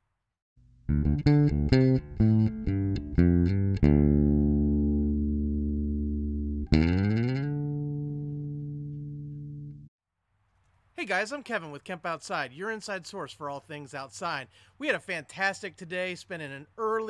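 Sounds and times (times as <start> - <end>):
electric guitar riff: 0.8 - 9.9.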